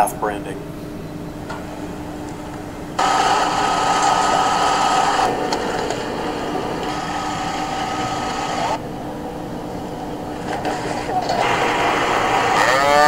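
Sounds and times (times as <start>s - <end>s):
low hum: 0.0s - 13.0s
electric motor buzzing: 3.0s - 8.8s, 10.6s - 13.0s.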